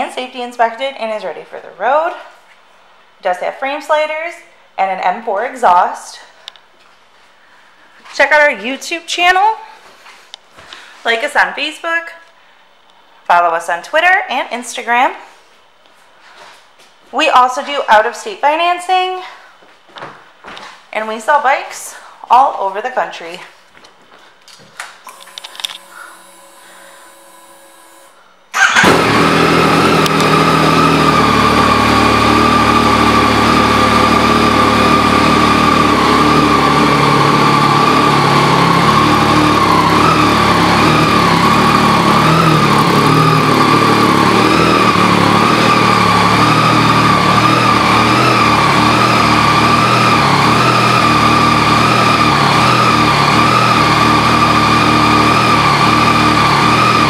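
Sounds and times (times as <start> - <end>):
motorcycle engine starting and idling: 25.1 - 57.0.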